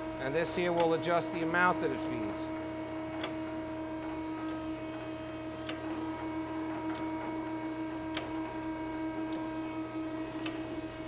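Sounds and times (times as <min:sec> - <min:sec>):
hydraulic unit humming: 0:00.0 - 0:11.0.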